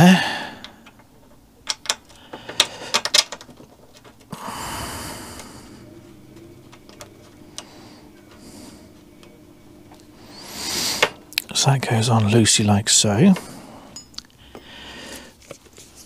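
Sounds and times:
soft hissing: 4.3s - 11.8s.

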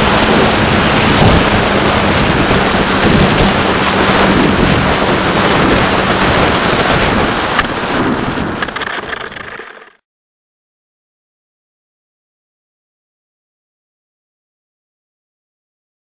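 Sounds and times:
wind rushing over microphone: 0.0s - 9.9s
electric motor and propeller hum: 0.0s - 10.0s.

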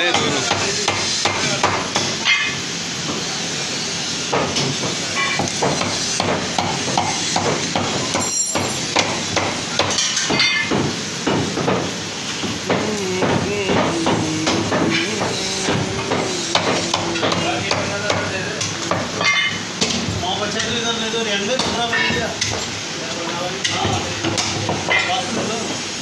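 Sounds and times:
metallic ring: 8.2s - 8.9s.

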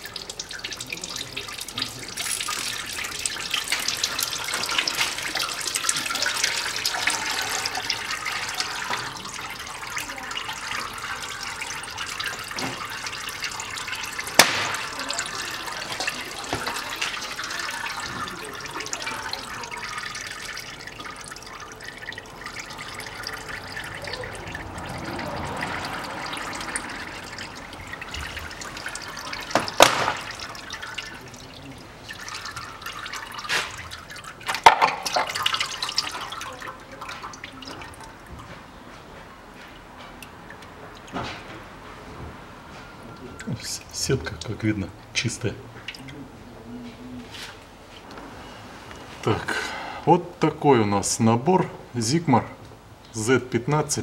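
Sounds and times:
fluid streaming and splashing: 0.0s - 38.9s.

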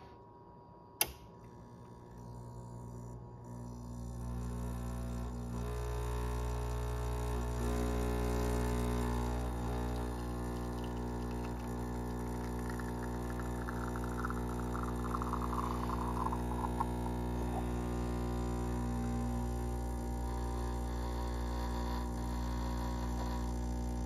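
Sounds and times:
pump humming: 1.9s - 24.0s
coffee trickling into glass: 9.6s - 17.8s.

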